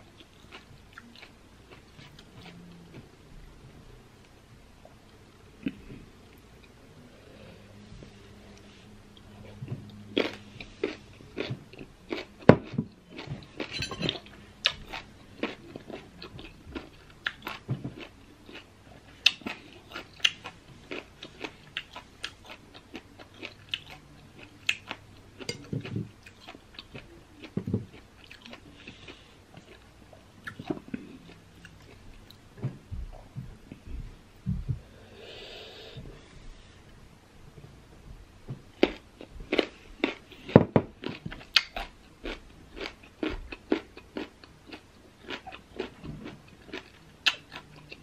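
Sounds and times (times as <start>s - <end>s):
biting and chewing crisp fruit: 8.5s - 32.4s, 38.8s - 48.0s.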